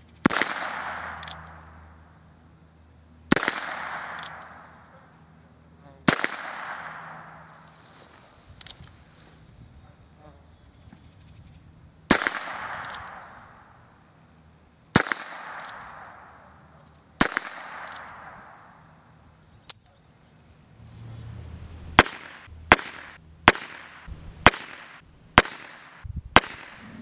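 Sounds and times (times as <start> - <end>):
revolver shots echoing: 0.2 - 2.0, 3.3 - 4.8, 12.1 - 13.7, 21.9 - 27.0
sharp gunshot cracks: 0.2 - 2.0, 3.3 - 4.8, 6.0 - 7.6, 12.1 - 13.8, 14.9 - 16.5, 17.2 - 18.8, 22.0 - 26.9.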